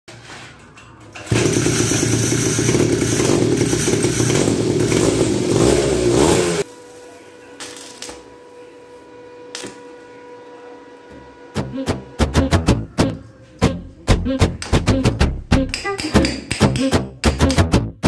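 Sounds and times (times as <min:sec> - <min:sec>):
small two-stroke engine revving: 0:01.3 - 0:06.7.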